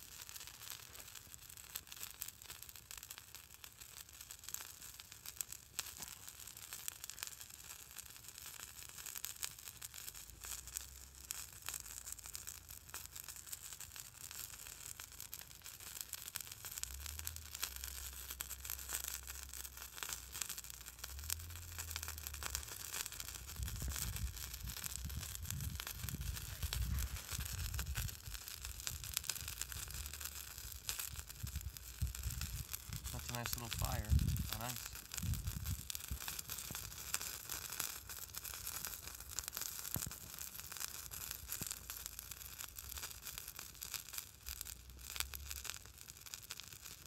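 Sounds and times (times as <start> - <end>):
twig fire crackling and sizzling: 0.0 - 47.0
low rumbles: 31.5 - 35.9.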